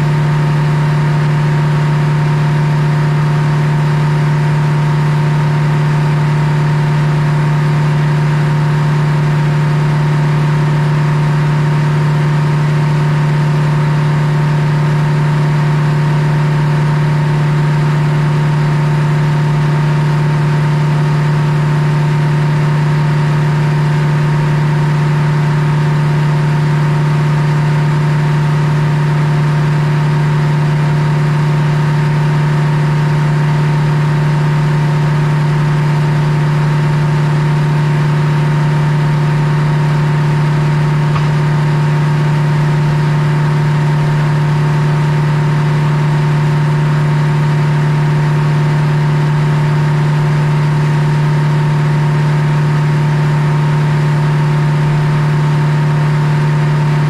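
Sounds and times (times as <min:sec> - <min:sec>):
sawmill drone: 0:00.0 - 0:57.0.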